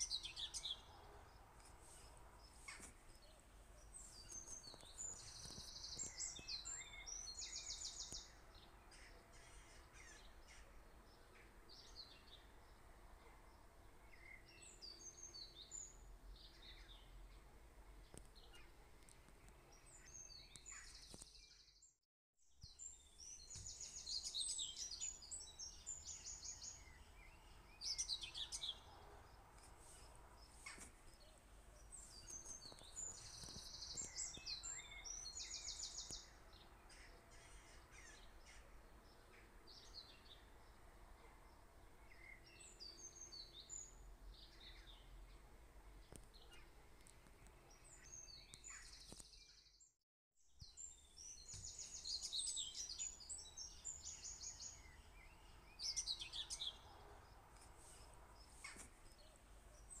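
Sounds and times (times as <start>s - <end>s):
birds chirping and trilling: 2.0s - 13.2s, 22.6s - 40.8s, 47.6s - 49.9s, 50.6s - 60.0s.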